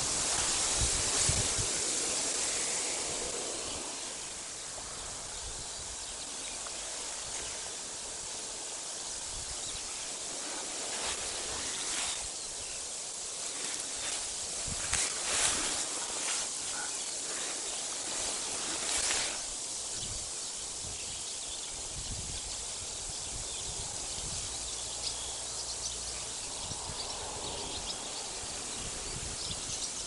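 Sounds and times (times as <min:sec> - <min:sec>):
wind rumble on microphone: 0:00.0 - 0:06.4, 0:14.0 - 0:16.4, 0:18.2 - 0:30.0
wind rushing hiss: 0:00.0 - 0:30.0.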